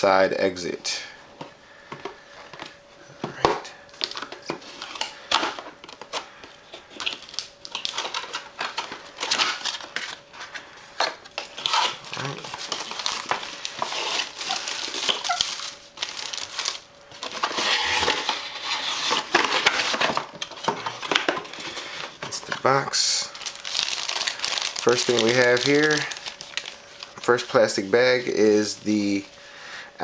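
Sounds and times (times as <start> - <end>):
packaging rustling and crinkling: 3.9 - 29.4.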